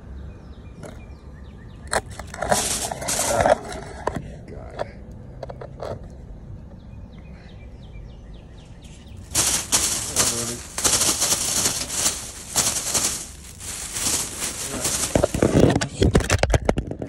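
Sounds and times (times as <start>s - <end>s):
plastic bag crinkling: 2.0s - 3.8s, 9.2s - 16.8s.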